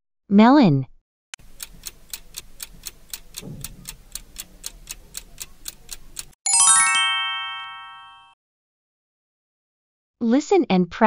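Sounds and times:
clock ticking: 1.4 - 6.4
descending bell chime: 6.5 - 8.4.

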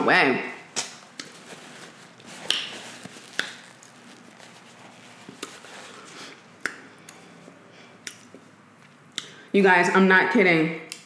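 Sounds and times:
paper napkin rustling: 1.0 - 6.4.

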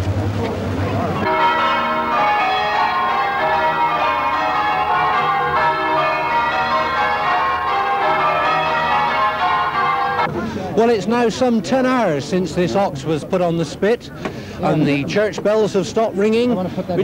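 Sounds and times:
church bells ringing: 1.2 - 10.3.

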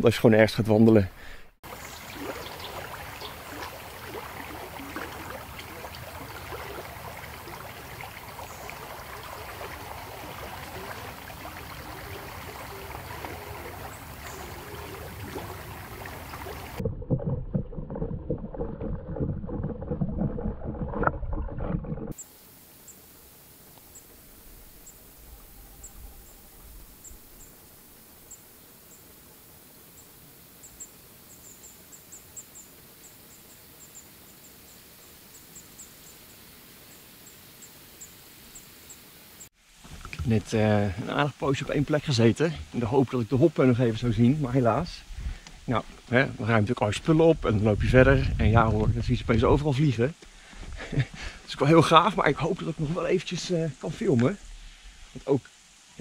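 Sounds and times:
stream flowing: 1.6 - 16.9, 20.6 - 32.9, 51.6 - 56.0
muffled rumbling: 16.6 - 22.2, 44.8 - 49.7.

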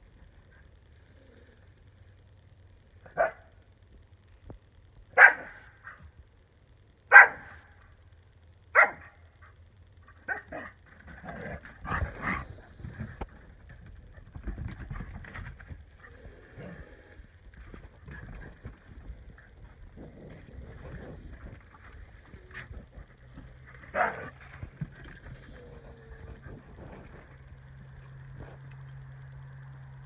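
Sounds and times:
dog barking: 3.1 - 3.5, 5.2 - 6.0, 7.1 - 7.6, 8.8 - 9.2, 23.9 - 24.4
dogs scuffling on wooden deck: 17.5 - 28.8.

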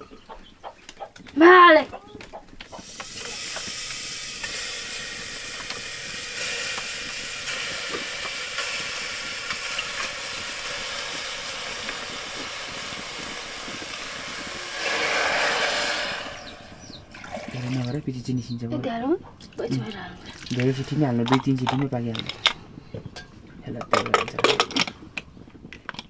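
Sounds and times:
faint crackles: 2.0 - 17.7
cooking pot hissing: 2.6 - 17.4.

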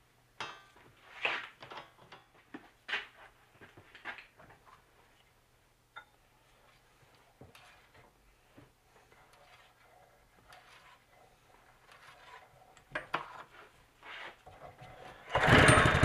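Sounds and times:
hands working on small engine: 6.6 - 16.0.

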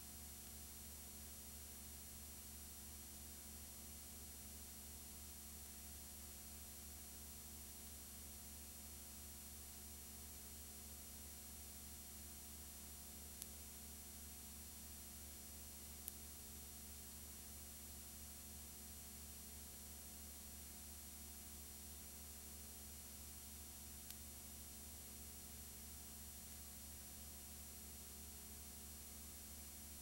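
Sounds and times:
low hum and hiss: 0.0 - 30.0
faint clicks: 13.4 - 13.6, 16.0 - 16.2, 23.9 - 24.3.

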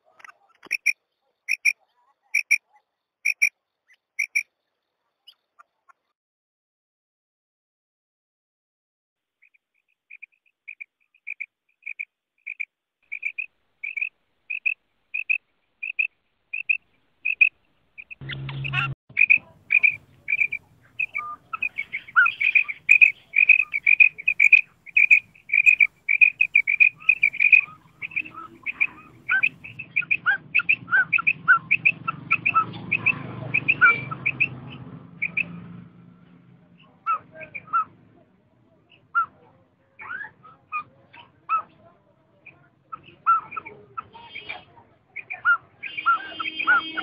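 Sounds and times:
quail calling: 0.0 - 3.5, 4.2 - 4.4, 10.1 - 35.6, 36.8 - 38.0, 42.4 - 47.0.

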